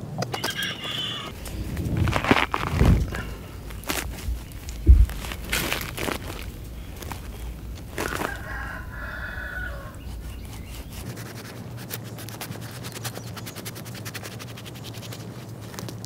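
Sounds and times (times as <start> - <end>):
low steady hum: 0.0 - 13.3
rooster crowing: 0.4 - 1.4, 7.9 - 10.8
knife cutting fruit: 9.0 - 13.1.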